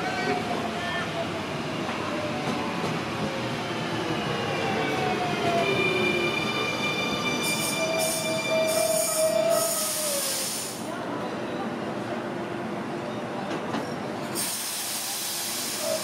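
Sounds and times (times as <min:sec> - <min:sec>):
short hissing bursts: 0:14.4 - 0:15.9.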